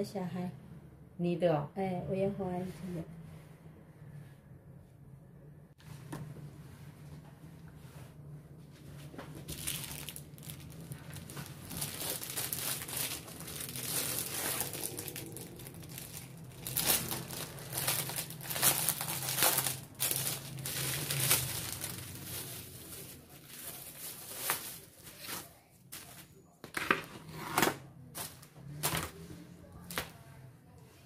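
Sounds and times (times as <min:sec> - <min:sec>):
plastic packaging crinkling: 0:09.4 - 0:26.2.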